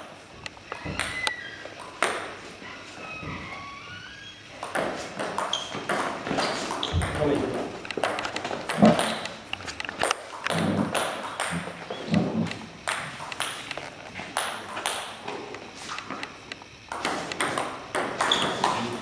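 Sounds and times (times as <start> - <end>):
table tennis ball ticking: 0.4 - 2.4, 4.6 - 18.8.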